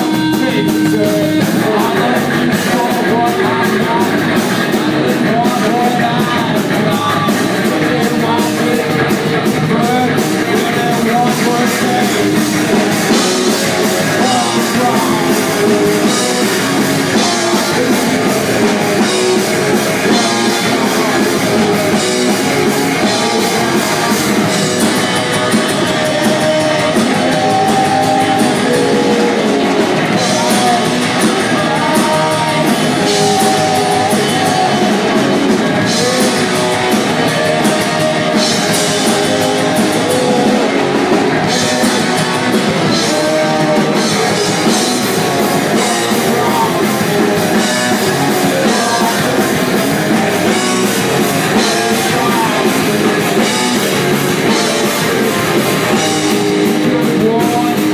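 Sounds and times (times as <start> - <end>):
rock band playing: 0.0 - 57.9.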